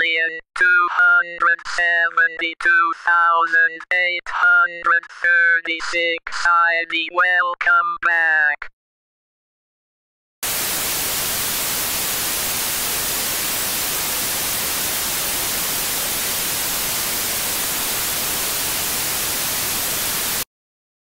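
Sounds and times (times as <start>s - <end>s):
television static hiss: 10.4s - 20.4s.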